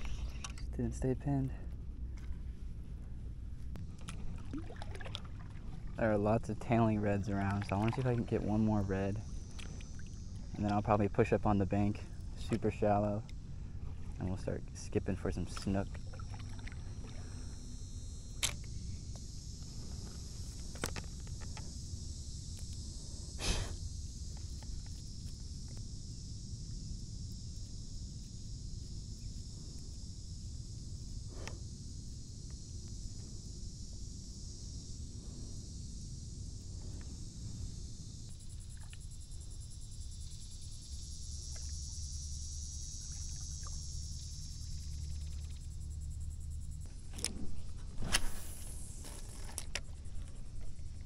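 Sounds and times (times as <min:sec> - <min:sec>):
high-pitched insect buzz: 0:03.6 - 0:51.0
high hiss: 0:21.8 - 0:45.6, 0:47.5 - 0:49.5.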